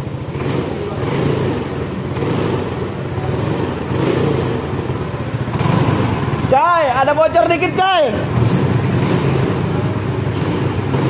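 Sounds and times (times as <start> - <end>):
scooter engine idling: 0.0 - 11.0.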